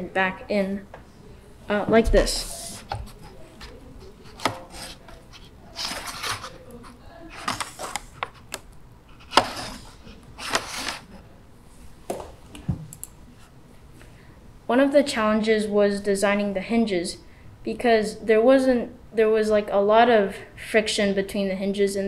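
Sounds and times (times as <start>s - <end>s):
wooden panels scraping: 2.1s - 8.5s, 9.1s - 11.1s.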